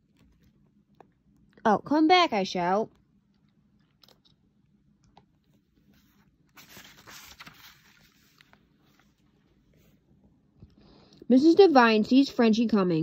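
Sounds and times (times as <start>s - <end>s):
paper page turning: 5.8s - 9.9s.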